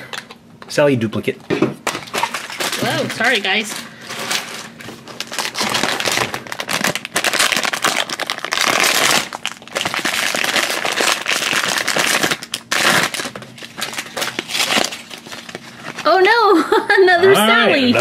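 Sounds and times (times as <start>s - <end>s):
foil bag crinkling: 1.8s - 16.2s.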